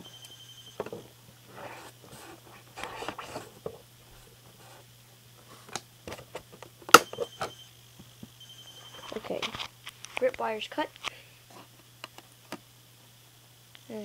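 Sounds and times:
box packaging rustling and scraping: 0.9s - 6.5s.

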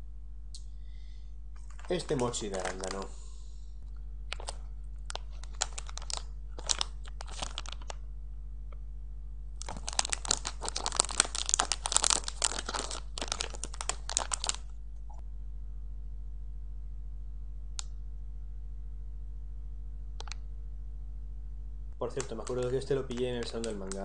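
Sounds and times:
wrapper tearing: 1.6s - 3.1s, 4.3s - 8.0s, 9.6s - 14.7s, 22.1s - 24.0s
plastic wrapper crinkling: 1.6s - 3.2s, 4.3s - 8.0s, 9.6s - 14.7s, 22.0s - 24.0s.

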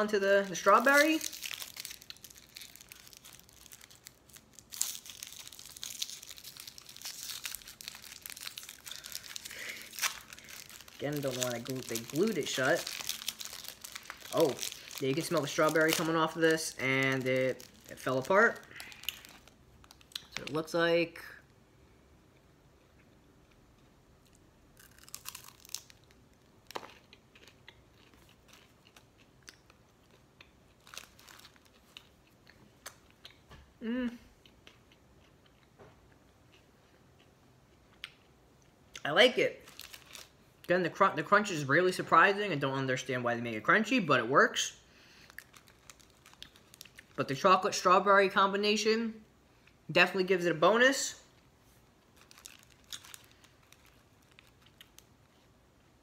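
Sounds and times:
foil wrapper crinkling and tearing: 0.0s - 20.6s, 24.8s - 26.9s, 30.8s - 32.0s, 39.6s - 40.4s, 45.2s - 47.6s, 52.1s - 55.4s
crunching and chewing candy: 0.4s - 20.6s, 22.8s - 33.5s, 34.3s - 40.7s, 45.1s - 47.4s, 52.0s - 56.0s.

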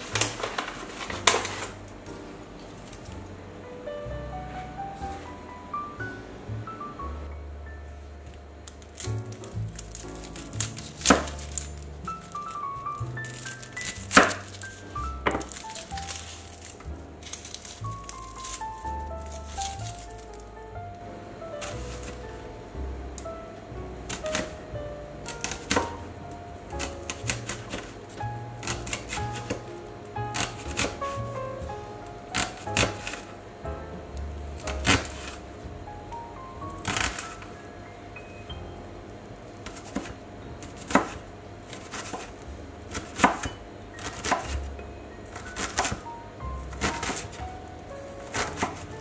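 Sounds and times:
soft jazz music: 0.0s - 49.0s
knife chopping on wooden board: 10.7s - 11.6s, 14.1s - 14.6s, 39.6s - 42.3s, 42.9s - 44.6s, 45.6s - 46.0s, 48.3s - 48.9s.

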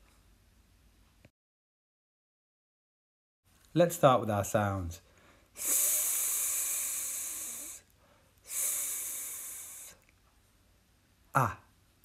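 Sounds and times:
person making a long hissing sss: 5.6s - 10.0s.

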